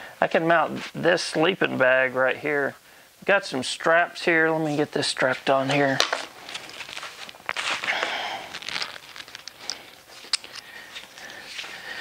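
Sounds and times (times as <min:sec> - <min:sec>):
footsteps: 0:04.6 - 0:12.0
rustling of straps: 0:04.6 - 0:12.0.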